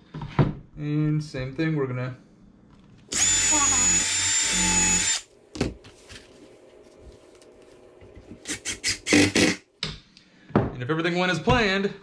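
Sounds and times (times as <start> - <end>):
cordless drill whining: 3.1 - 5.2.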